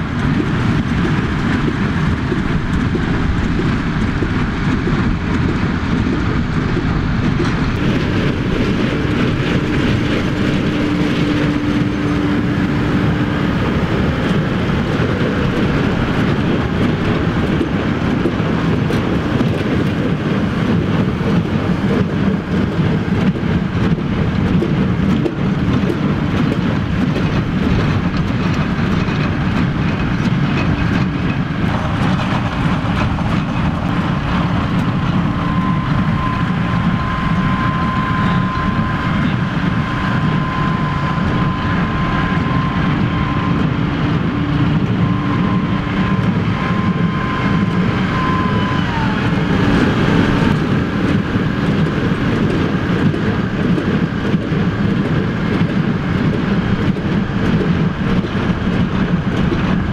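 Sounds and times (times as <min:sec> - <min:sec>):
haymaking machinery clatter: 0:00.0 - 0:48.6, 0:49.2 - 0:59.9
tractor diesel engines running: 0:00.0 - 0:59.9.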